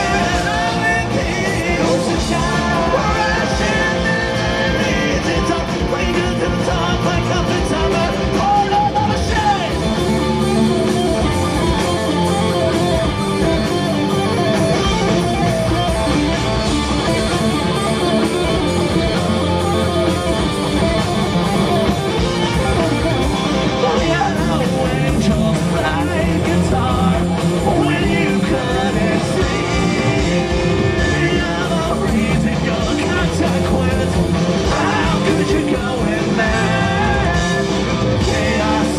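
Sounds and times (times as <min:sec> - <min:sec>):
person singing: 0:00.0 - 0:10.2, 0:23.7 - 0:38.9
punk rock band playing live: 0:00.0 - 0:38.9.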